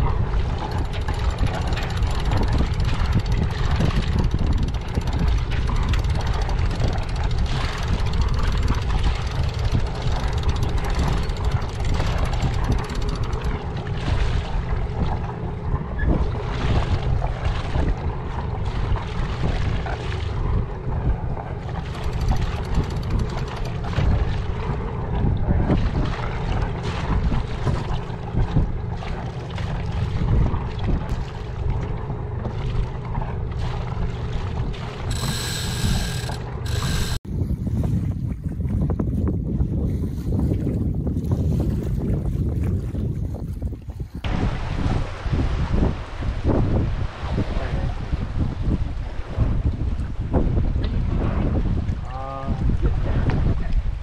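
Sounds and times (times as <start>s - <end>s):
wind buffeting microphone: 0.0s - 54.0s
high-pitched tone: 35.1s - 37.2s.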